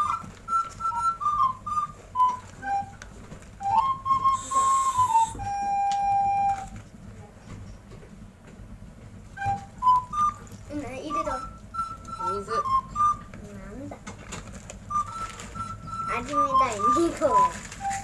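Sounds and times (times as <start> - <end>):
person whistling melody: 0.0 - 6.8, 9.4 - 13.4, 14.9 - 18.0
plastic bag handling clicks: 14.1 - 18.0.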